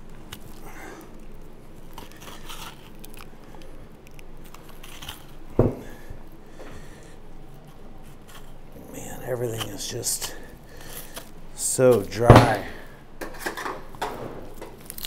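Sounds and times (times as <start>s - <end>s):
meat tearing: 0.0s - 12.2s, 14.5s - 15.0s
knife scraping along bone: 1.9s - 3.3s.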